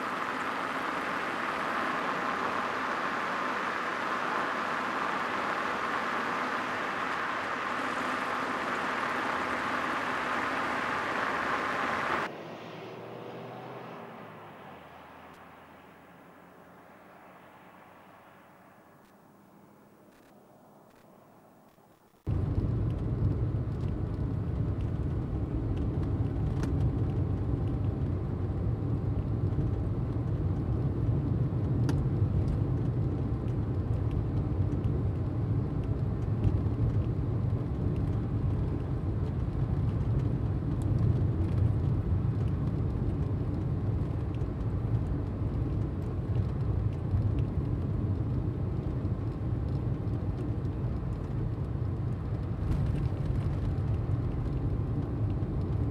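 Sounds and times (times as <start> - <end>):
road and engine rumble in car: 0.0 - 21.2, 21.9 - 55.9.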